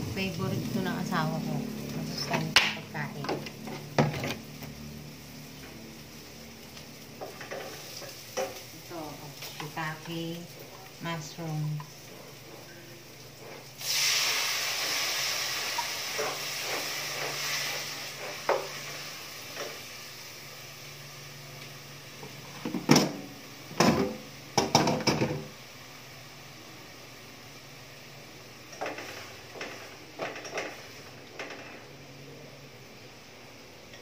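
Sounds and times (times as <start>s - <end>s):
mushrooms sizzling in a pan: 0.0s - 34.0s
spatula scraping a pan: 12.0s - 19.8s, 28.7s - 31.9s.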